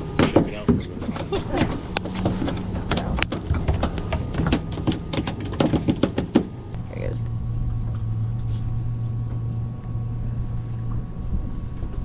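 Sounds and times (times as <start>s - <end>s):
clicks and knocks on boat deck: 0.0s - 6.5s
steady low hum: 0.0s - 12.0s.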